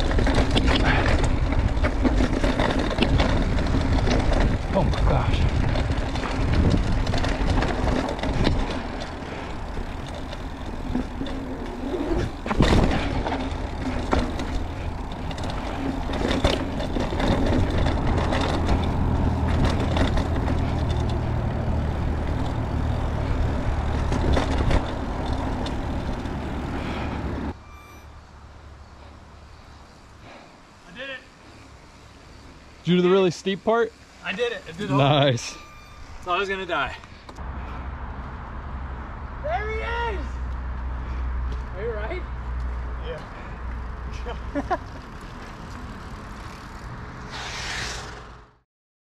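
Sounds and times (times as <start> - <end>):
bike rattling over bumps: 0.0 - 27.6, 28.9 - 37.0, 41.0 - 48.6
bike tyres rumbling over dirt: 0.0 - 27.6, 43.4 - 48.5.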